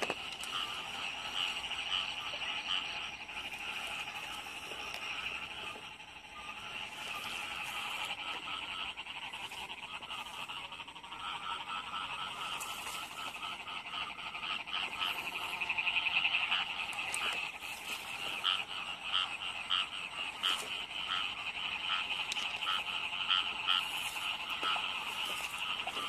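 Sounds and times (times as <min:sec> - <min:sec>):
chorus of frogs trilling: 0:00.0 - 0:26.0
louder single frog calls: 0:00.0 - 0:26.0.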